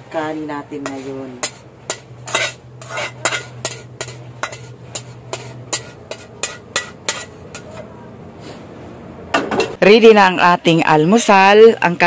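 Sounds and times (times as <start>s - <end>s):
spatula scraping metal frying pan: 0.8s - 7.9s.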